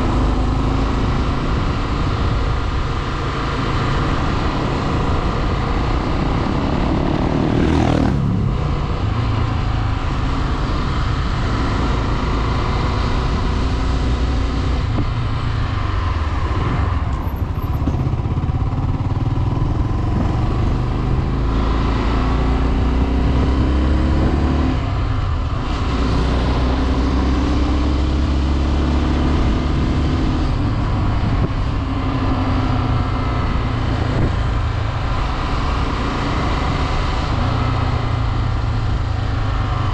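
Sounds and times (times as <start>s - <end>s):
motorcycle engine running: 0.0s - 25.9s.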